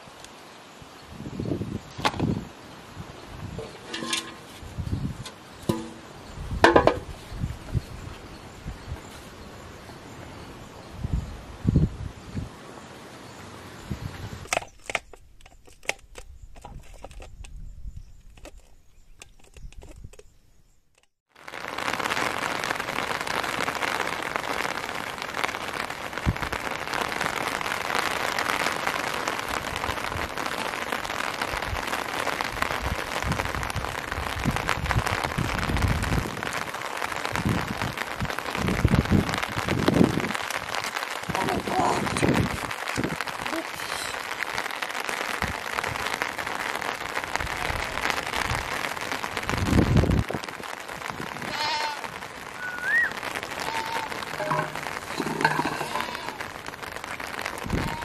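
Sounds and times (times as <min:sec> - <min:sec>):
rain falling on river and grass: 0:00.0 - 0:15.0, 0:21.3 - 0:58.0
sharp crackles and clicks: 0:03.4 - 0:07.2, 0:20.9 - 0:58.0.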